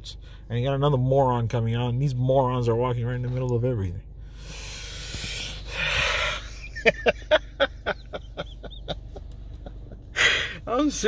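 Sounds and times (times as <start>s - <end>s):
man laughing hard: 5.7s - 10.6s.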